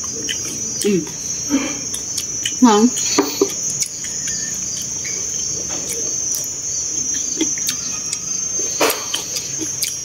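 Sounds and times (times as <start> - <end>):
mouth sounds of eating: 0.0 - 4.9
high-pitched insect drone: 0.0 - 10.0.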